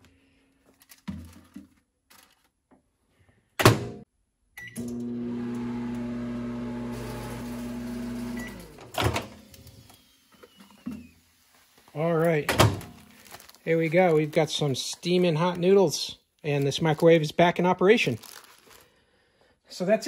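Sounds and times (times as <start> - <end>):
microwave electrical hum: 4.6 - 10.0.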